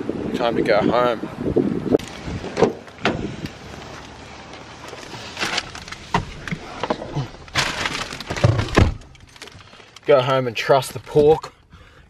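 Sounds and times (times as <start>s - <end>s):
car door opening: 2.0s - 4.1s, 4.9s - 9.6s
person climbing into car: 2.0s - 10.0s
rustling clatter: 3.8s - 10.1s.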